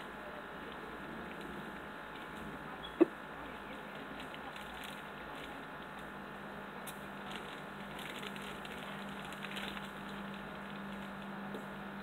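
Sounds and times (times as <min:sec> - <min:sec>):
steady low hum: 0:00.0 - 0:12.0
plastic bag crinkling: 0:03.4 - 0:06.1, 0:07.2 - 0:11.4.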